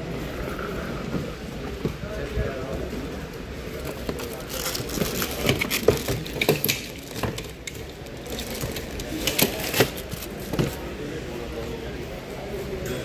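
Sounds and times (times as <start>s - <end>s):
plastic wrap crinkling: 3.8s - 10.8s
suitcase clicks and knocks: 3.8s - 10.8s.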